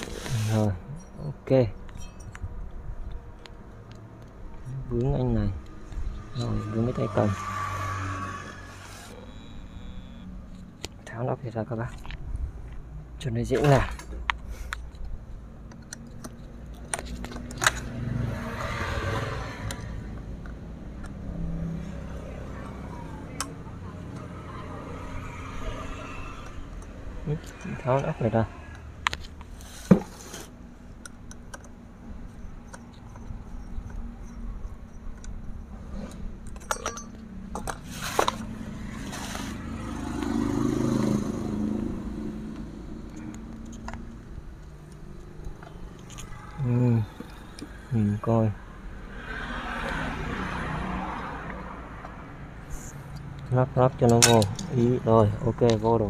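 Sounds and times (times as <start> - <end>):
metal tools clicking and clinking: 0.9 - 2.5, 31.0 - 38.4, 53.1 - 54.9.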